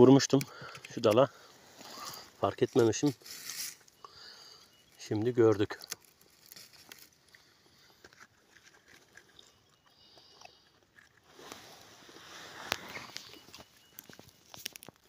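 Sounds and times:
rustling leaf litter and twigs: 1.6 - 8.0, 11.2 - 15.0.

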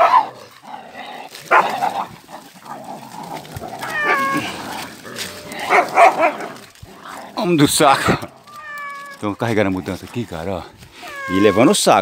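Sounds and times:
dogs barking and yipping: 0.0 - 9.2
cat meowing: 3.8 - 4.5, 8.4 - 9.2, 11.0 - 12.0.

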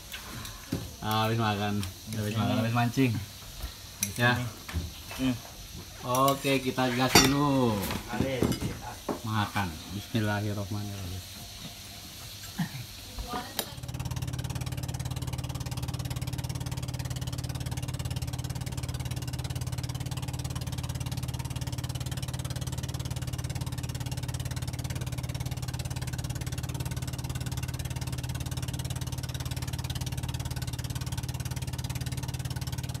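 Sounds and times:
steady hiss: 0.0 - 32.6
boat engine running steadily: 13.8 - 33.0.

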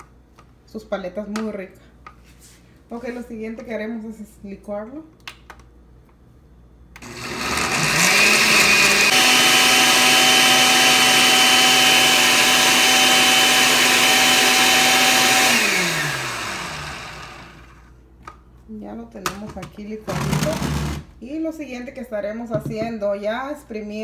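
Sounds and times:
blender motor pureeing fruit: 7.0 - 17.8, 20.1 - 21.1.

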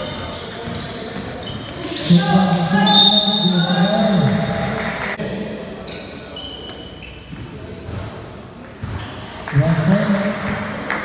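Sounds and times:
shoes squeaking on court: 0.0 - 2.1, 5.8 - 9.4.

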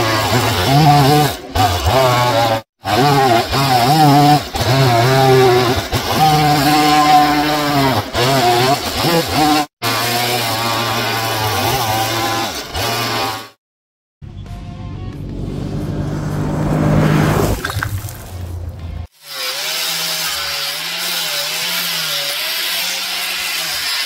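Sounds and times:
chainsaw cutting wood: 0.0 - 13.6, 19.0 - 24.0.

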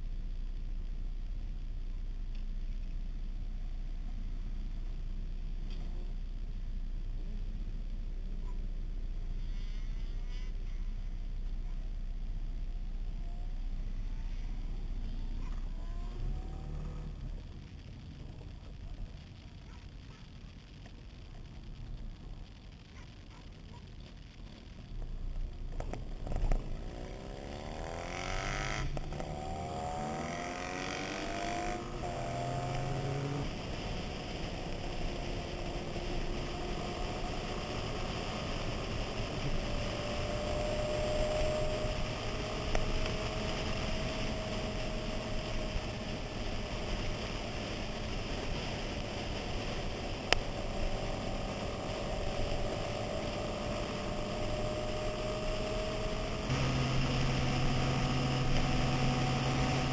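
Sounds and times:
motorcycle engine accelerating: 25.2 - 59.9.

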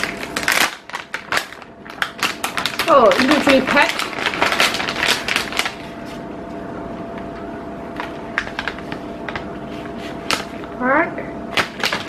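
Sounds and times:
plastic packaging crinkling: 0.0 - 6.3, 7.9 - 10.8, 11.5 - 12.0.

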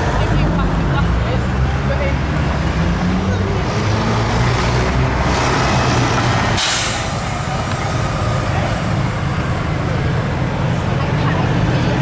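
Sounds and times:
heavy vehicle engines idling: 0.0 - 12.0
air brake hiss: 6.6 - 7.2.

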